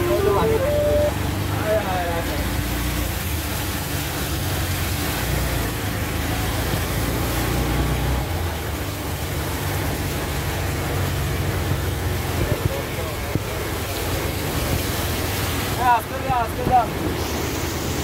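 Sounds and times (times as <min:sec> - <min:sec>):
rain hissing: 0:00.0 - 0:01.4, 0:16.9 - 0:18.0
tyres on wet road: 0:00.0 - 0:18.0.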